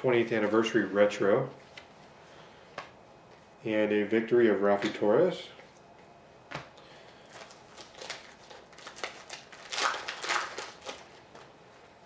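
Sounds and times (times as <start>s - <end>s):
card wrapper rustling and crinkling: 7.2s - 11.6s.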